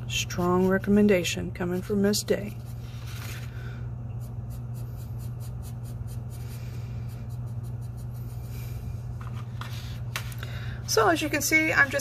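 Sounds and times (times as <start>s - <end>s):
steady low hum: 0.0s - 12.0s
pencil scratching on paper: 0.2s - 3.5s, 4.2s - 8.8s.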